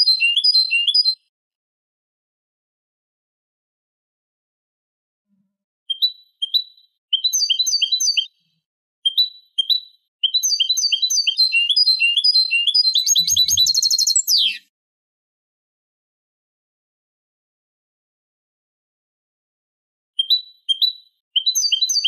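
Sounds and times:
goldfinch twittering song: 0.0s - 1.2s, 5.9s - 8.5s, 9.1s - 14.7s, 20.2s - 22.0s.

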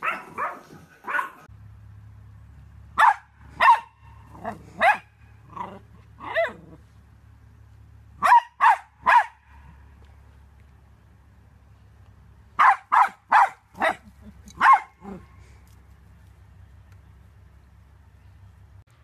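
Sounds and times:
small dogs barking: 0.0s - 1.5s, 2.9s - 6.8s, 8.2s - 9.8s, 12.6s - 15.4s.

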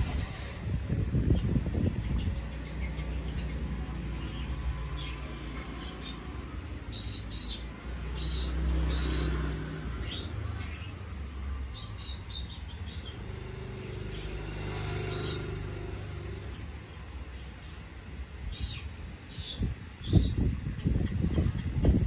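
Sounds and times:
low rumble of traffic: 0.0s - 22.0s
high bird chirps: 1.2s - 17.8s.

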